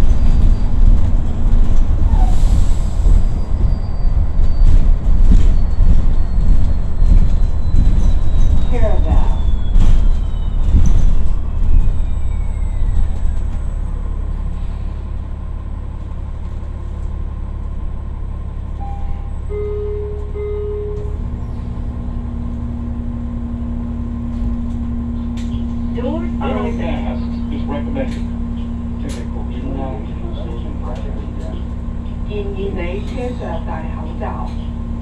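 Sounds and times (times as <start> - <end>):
bus low hum: 0.0 - 35.0
road rumble: 0.0 - 35.0
short tones: 18.7 - 21.3.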